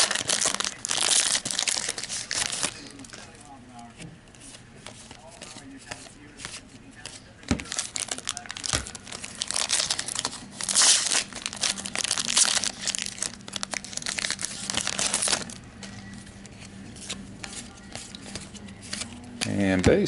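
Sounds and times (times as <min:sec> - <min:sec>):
wrapper crinkling and tearing: 0:00.0 - 0:03.3, 0:07.6 - 0:16.1.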